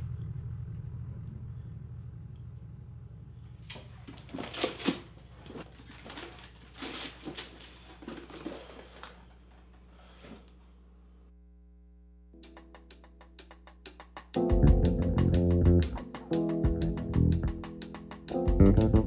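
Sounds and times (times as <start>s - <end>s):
low rumble: 0.0s - 3.7s
paper rustling and crinkling: 4.0s - 10.4s.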